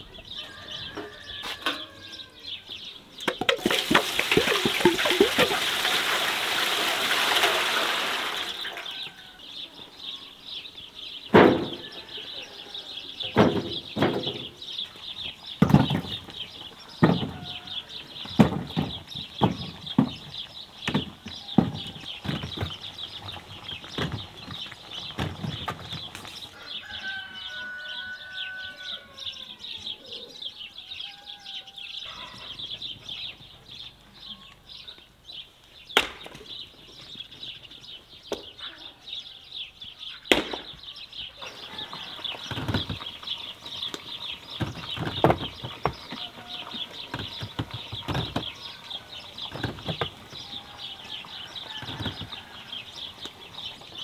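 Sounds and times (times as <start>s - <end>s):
small birds chirping: 0.0s - 5.6s, 8.4s - 54.0s
longer bird calls: 0.0s - 6.0s, 7.6s - 54.0s
axe splitting firewood: 15.6s - 16.3s, 18.3s - 22.8s.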